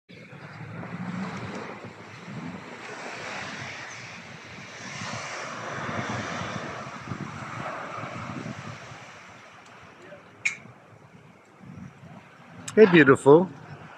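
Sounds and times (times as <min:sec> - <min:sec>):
wind gusting on microphone: 0:00.1 - 0:13.9
waves washing ashore: 0:00.2 - 0:13.9.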